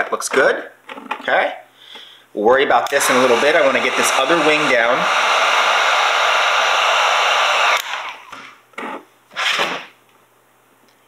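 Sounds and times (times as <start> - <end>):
heat gun blowing hot air: 2.9 - 8.4.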